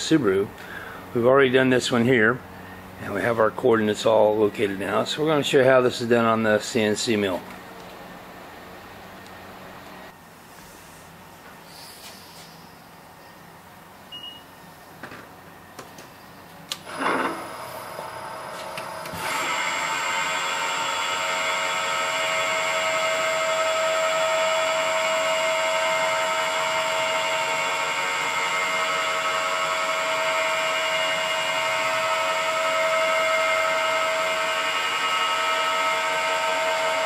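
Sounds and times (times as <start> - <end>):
milling machine spindle whining: 16.8 - 37.0.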